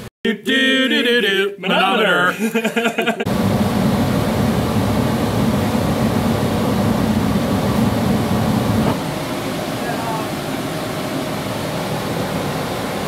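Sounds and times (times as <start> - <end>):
gas furnace rushing rumble: 3.0 - 13.0.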